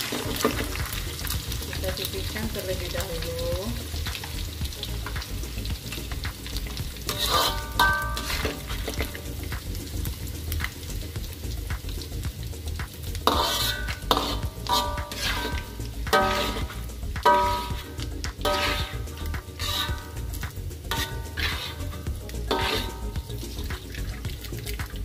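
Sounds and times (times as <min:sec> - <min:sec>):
skimmer scraping and clinking on wok: 0:00.0 - 0:03.0, 0:07.0 - 0:09.4, 0:13.2 - 0:25.0
fish sizzling in hot oil: 0:00.0 - 0:25.0.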